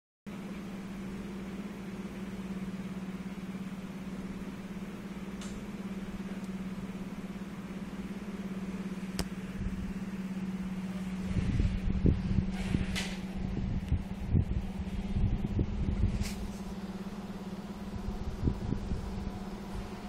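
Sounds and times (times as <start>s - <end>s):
low mechanical hum: 0.3s - 20.0s
sharp click: 5.4s - 5.6s.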